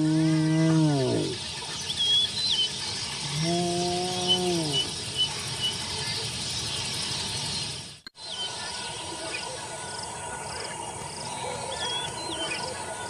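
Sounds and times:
low drawn-out animal call: 0.0s - 1.4s, 3.2s - 5.0s
insects humming: 0.0s - 13.0s.

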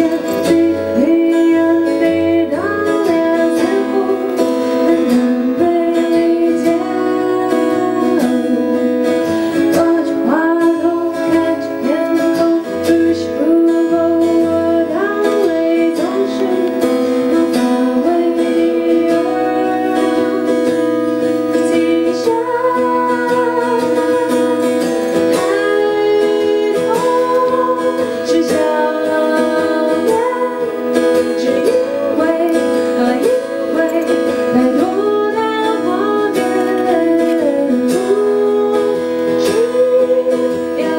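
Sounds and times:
acoustic guitar: 0.0s - 40.9s
woman singing: 0.0s - 40.9s.

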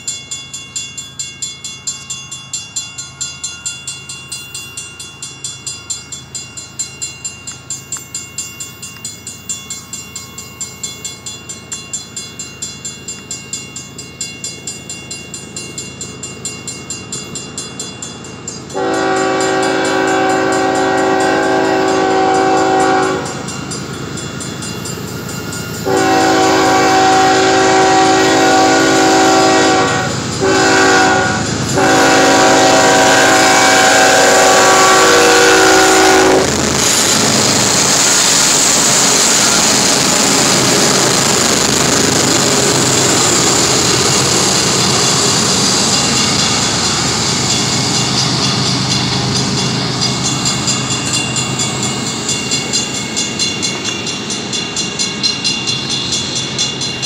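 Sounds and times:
crossing signal bell ringing: 0.0s - 57.0s
locomotive air horn blasts: 18.7s - 23.4s, 25.8s - 36.6s.

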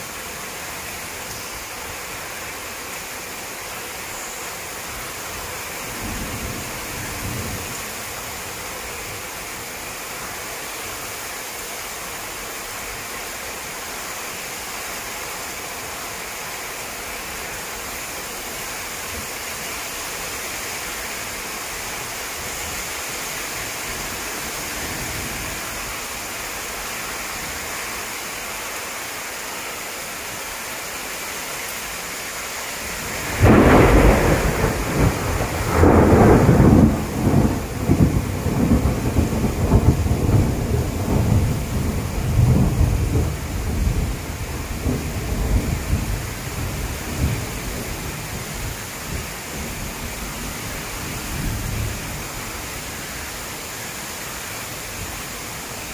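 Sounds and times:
rain hissing on trees: 0.0s - 55.9s
thunderclap and rolling rumble: 33.0s - 52.3s.

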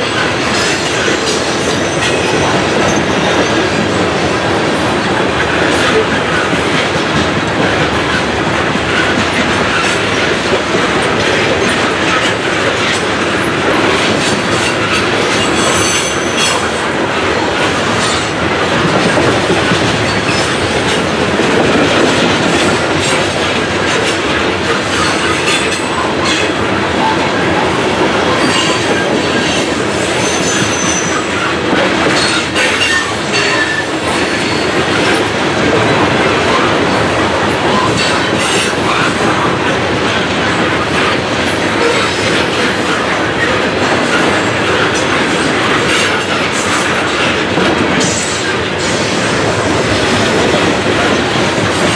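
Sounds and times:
train wheels rumbling on rails: 0.0s - 51.9s
high wheel squeals: 30.2s - 31.2s.

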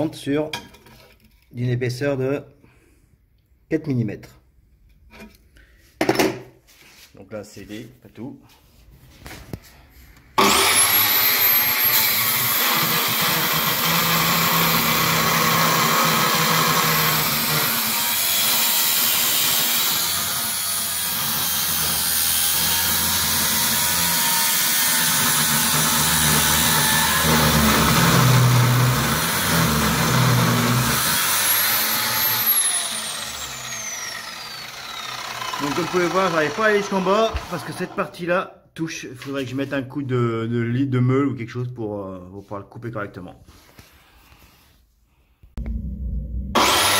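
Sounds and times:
saw motor whine: 10.4s - 38.0s, 46.6s - 46.9s.

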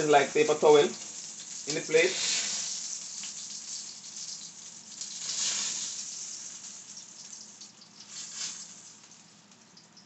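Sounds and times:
fish sizzling in hot oil: 0.0s - 10.0s.

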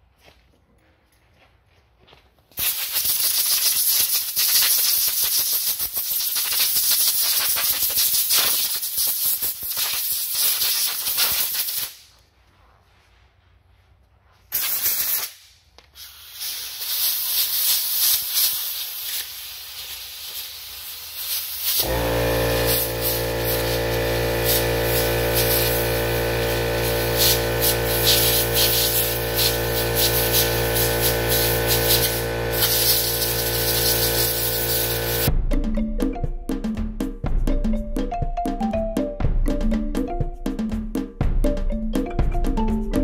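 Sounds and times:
compressed air blow gun hissing: 16.0s - 35.3s.

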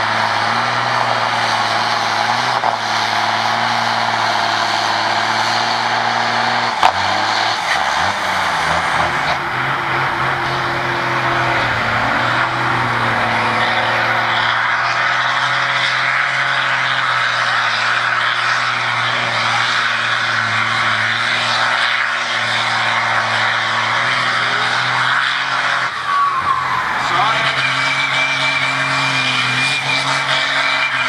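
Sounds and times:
tractor diesel engine under load: 0.0s - 31.0s.

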